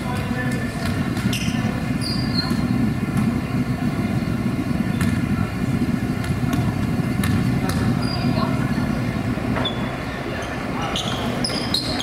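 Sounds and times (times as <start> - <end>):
low gym rumble: 0.0 - 12.0
high shoe squeak: 1.2 - 2.7, 7.9 - 8.4, 9.6 - 12.0.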